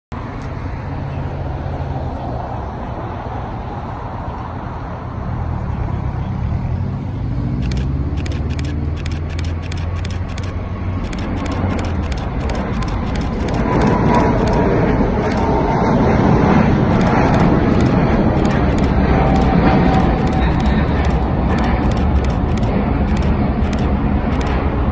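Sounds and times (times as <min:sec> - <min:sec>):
jet engines rumbling at takeoff: 0:00.2 - 0:24.9.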